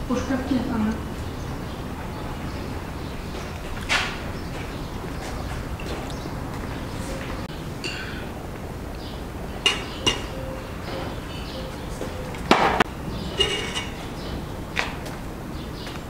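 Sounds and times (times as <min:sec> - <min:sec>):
metal spoon clinking on pot: 0:13.4 - 0:14.0.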